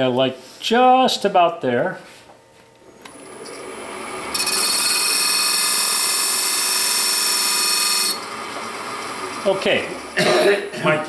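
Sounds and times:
wood lathe running: 0:03.0 - 0:11.0.

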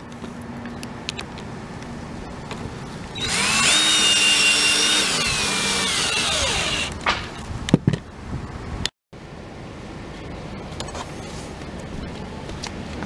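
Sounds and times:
cordless drill motor whine: 0:03.2 - 0:07.0.

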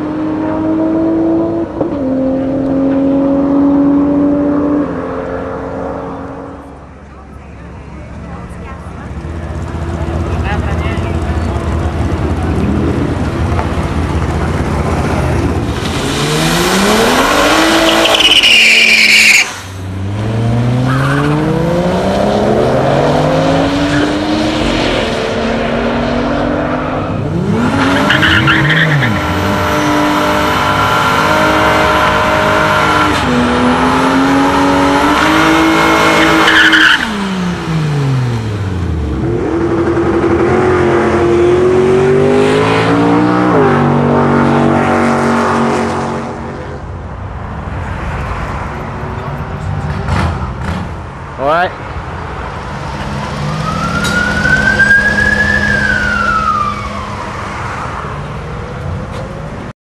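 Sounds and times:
car engine revving: 0:08.4 - 0:47.0
tire squeal: 0:16.3 - 0:19.8, 0:20.8 - 0:21.6, 0:26.8 - 0:29.6, 0:36.0 - 0:37.2, 0:53.0 - 0:58.2.

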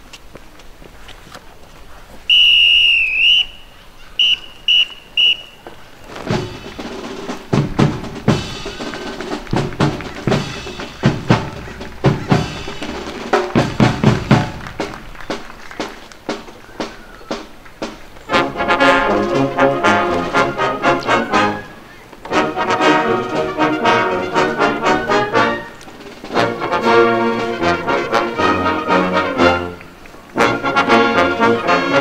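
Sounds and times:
whistle blasts: 0:02.3 - 0:05.8, 0:21.0 - 0:22.0, 0:24.6 - 0:25.8
marching band playing a march: 0:04.2 - 0:32.0
snare and bass drums: 0:06.1 - 0:21.6, 0:22.3 - 0:28.6.

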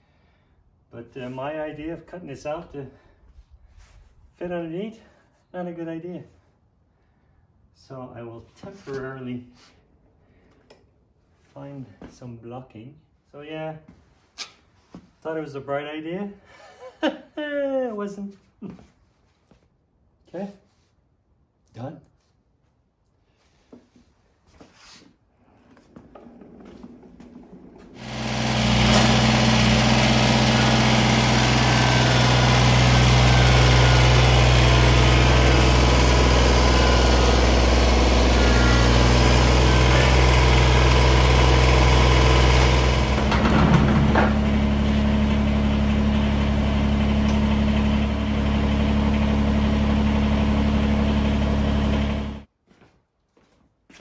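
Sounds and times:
tractor diesel engine running: 0:25.8 - 0:52.5.

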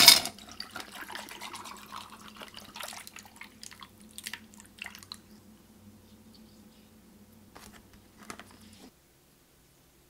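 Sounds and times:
water trickling over ice: 0:00.4 - 0:05.4.

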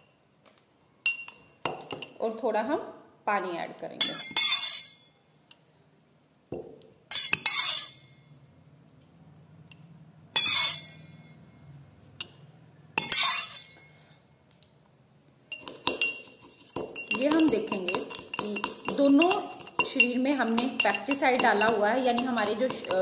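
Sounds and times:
metal spoon clinking against glass: 0:01.1 - 0:02.2, 0:04.0 - 0:05.2, 0:07.1 - 0:08.5, 0:10.4 - 0:11.5, 0:13.0 - 0:14.0, 0:15.5 - 0:23.0.

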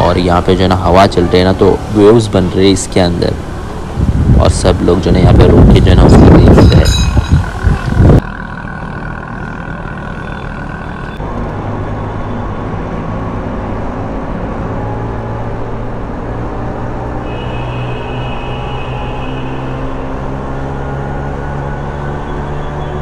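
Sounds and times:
scooter engine running: 0:07.1 - 0:11.7.

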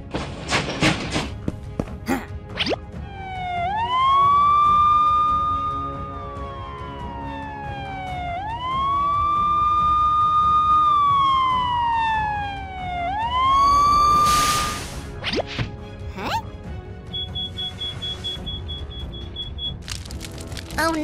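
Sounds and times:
emergency siren wailing: 0:03.0 - 0:15.0
loud burst of hiss: 0:14.2 - 0:15.1.

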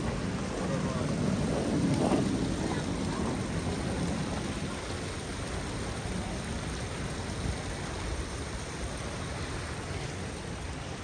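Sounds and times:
fountain jets splashing: 0:00.0 - 0:11.0.

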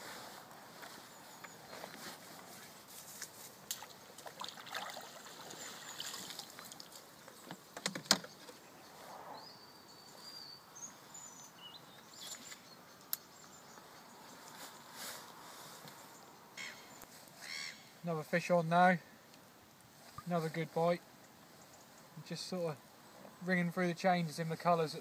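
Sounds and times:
fishing tackle clicks and knocks: 0:07.3 - 0:08.6
bird chirps: 0:08.2 - 0:15.0, 0:16.0 - 0:18.0.

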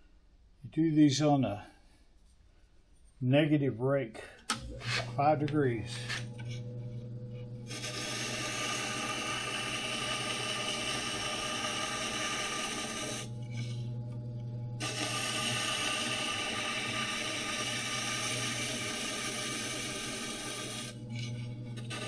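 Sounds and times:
motor hum: 0:04.2 - 0:22.0
blade grinding on wheel: 0:07.6 - 0:13.9, 0:14.8 - 0:22.0.

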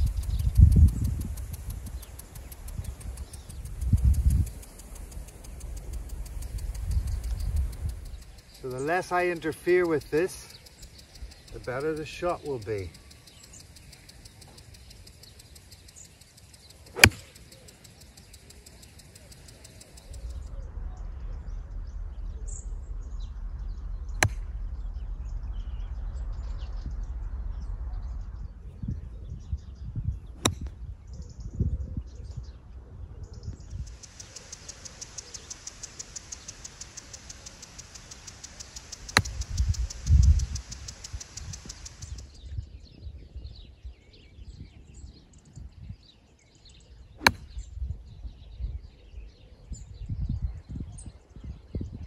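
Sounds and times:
golf club striking ball: 0:16.9 - 0:17.5, 0:24.2 - 0:24.5, 0:30.4 - 0:30.7, 0:37.8 - 0:39.5, 0:47.2 - 0:47.6
low rumbling: 0:20.3 - 0:31.1.

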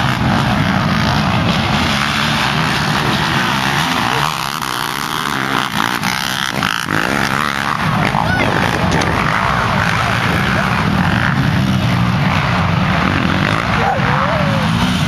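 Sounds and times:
racing quad engines at full throttle: 0:00.0 - 0:15.0.

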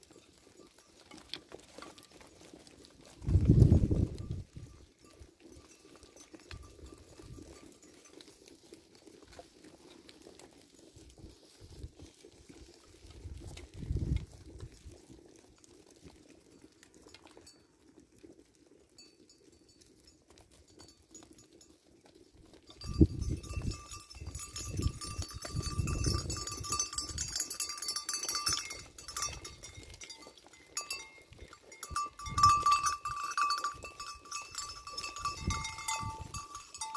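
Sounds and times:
metal livestock bell clanking: 0:00.0 - 0:02.5, 0:03.4 - 0:08.5, 0:18.9 - 0:21.8, 0:22.7 - 0:36.9.

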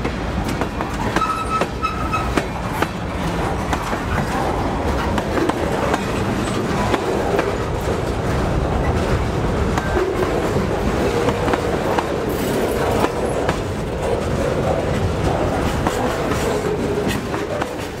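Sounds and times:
freight train rumbling past: 0:00.0 - 0:18.0
train wheels clacking over rail joints: 0:00.0 - 0:18.0.

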